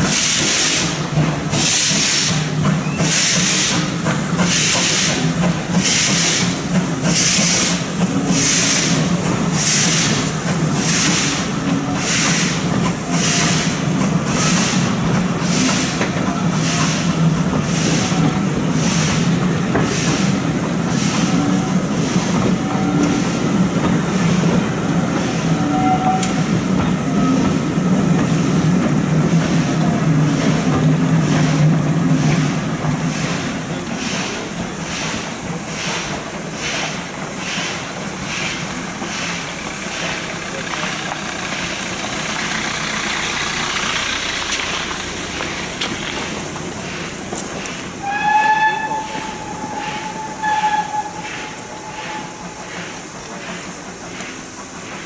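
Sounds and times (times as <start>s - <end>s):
steam locomotive chuffing: 0.0s - 55.0s.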